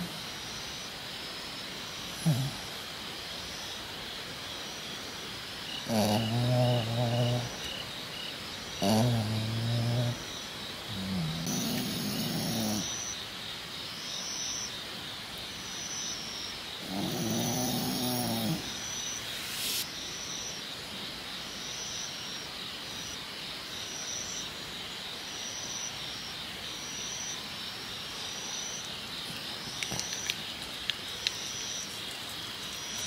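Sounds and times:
steady background hiss: 0.0 - 33.0
small dog grumbling: 2.1 - 2.7, 5.8 - 7.8, 8.8 - 10.3, 10.9 - 12.9, 16.8 - 18.7.

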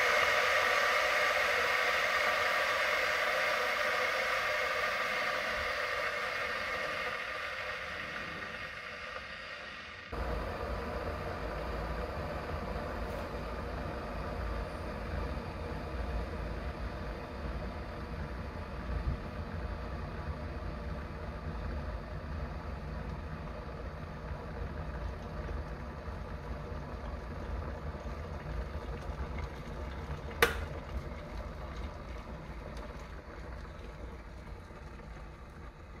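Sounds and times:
kettle water boiling: 0.0 - 36.0
kettle switch click: 30.4 - 30.7.

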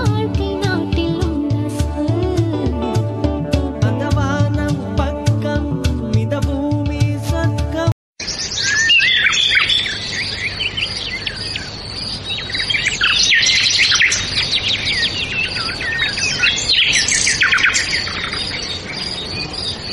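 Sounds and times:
small birds chirping: 8.2 - 19.9.

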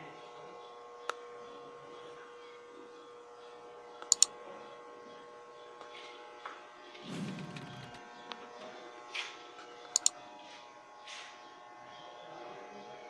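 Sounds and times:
sharp clicks: 4.0 - 4.3, 9.9 - 10.2
steady machine hum: 6.9 - 9.1
short low rumble: 7.0 - 8.1.

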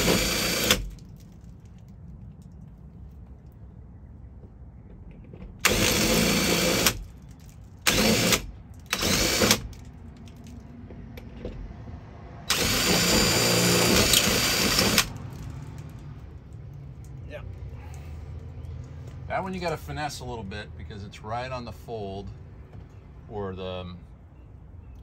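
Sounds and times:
cordless drill drilling sheet metal: 0.0 - 0.9, 5.6 - 7.1, 7.9 - 9.8, 12.5 - 15.2.

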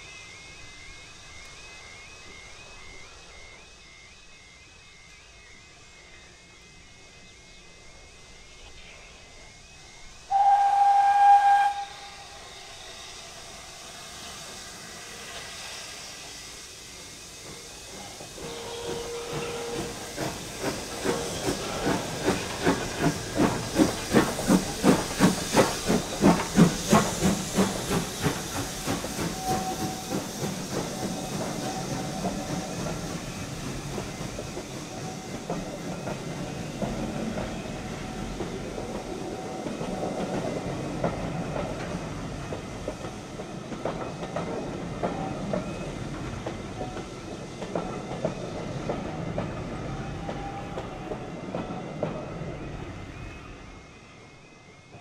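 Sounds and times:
steam whistle: 10.3 - 13.5, 18.1 - 22.7, 26.6 - 33.2, 49.8 - 51.2
locomotive exhaust chuffs: 10.3 - 53.8
thin wheel squeal: 17.6 - 22.6, 27.1 - 36.7.

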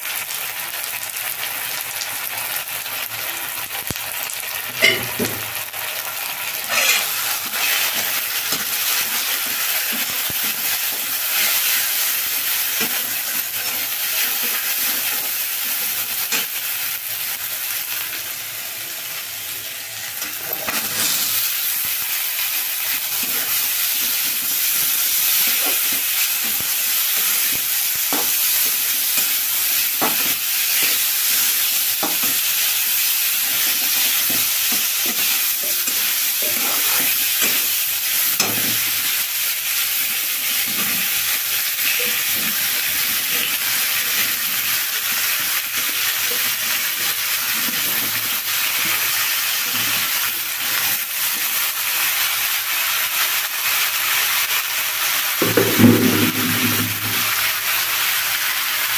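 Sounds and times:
chickpeas sizzling in hot oil: 0.0 - 58.9
metal spatula scraping pan: 6.7 - 11.9.

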